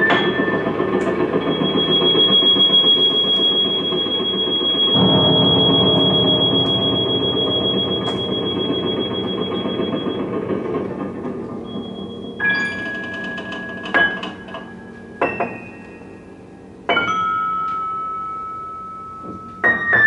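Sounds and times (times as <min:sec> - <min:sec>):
low piano playing: 0:00.0 - 0:20.0
high electronic tone: 0:01.4 - 0:10.8.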